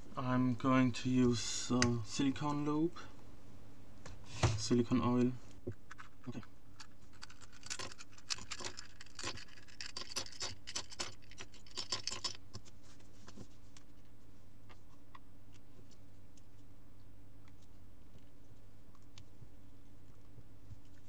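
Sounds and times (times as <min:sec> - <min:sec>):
plastic cube pieces clicking: 0:06.8 - 0:12.4.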